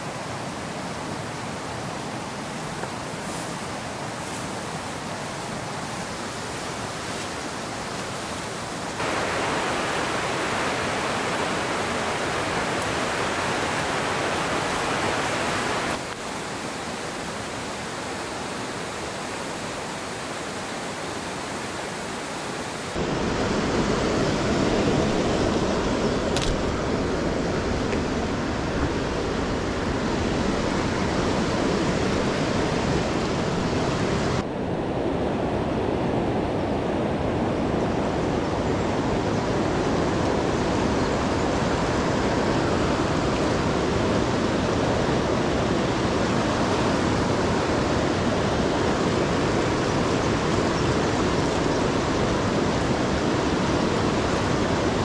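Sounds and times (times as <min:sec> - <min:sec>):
river rushing over rocks: 0:00.0 - 0:34.4.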